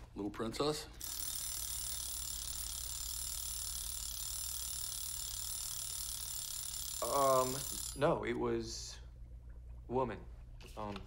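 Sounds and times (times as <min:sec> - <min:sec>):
low steady hum: 0:00.0 - 0:11.0
fast mechanical ticking: 0:01.0 - 0:08.1.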